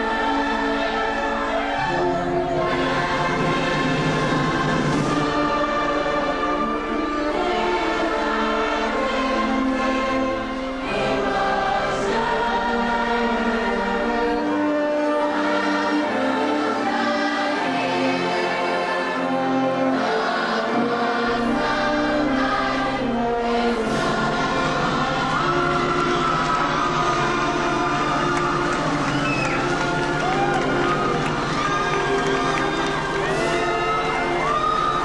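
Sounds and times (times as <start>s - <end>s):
choir singing long notes: 0.0s - 35.0s.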